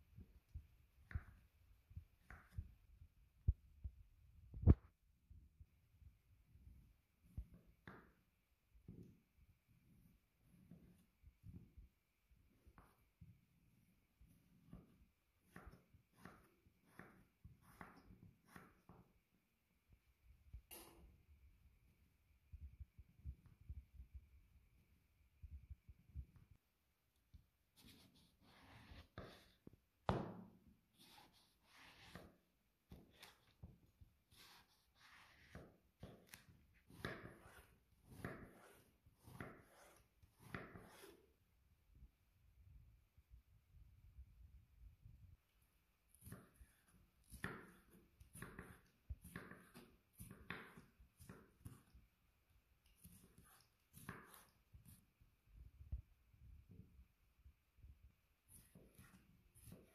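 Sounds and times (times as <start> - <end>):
knife slicing on cutting board: 34.3 - 41.2.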